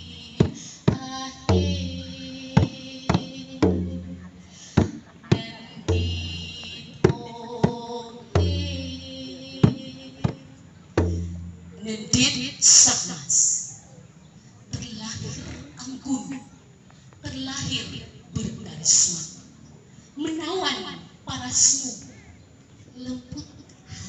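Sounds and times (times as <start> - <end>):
hand drum booms and slaps: 2.6 - 5.0, 11.0 - 11.7.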